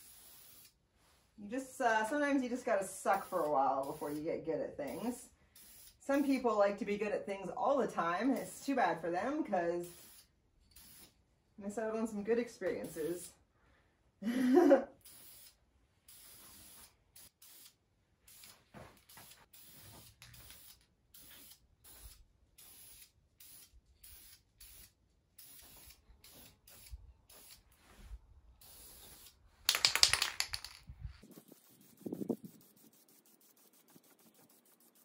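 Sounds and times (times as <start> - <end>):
aerosol can spraying bursts: 0.0 - 0.8, 3.1 - 4.2, 4.9 - 6.4, 9.8 - 11.2, 15.0 - 27.7, 31.5 - 35.0.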